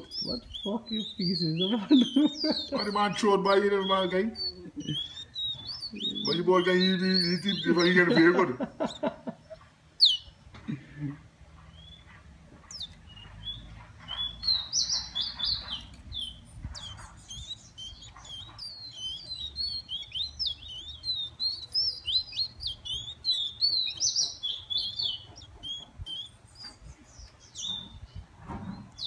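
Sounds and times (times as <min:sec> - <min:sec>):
songbird twittering song: 0:00.0 - 0:29.0.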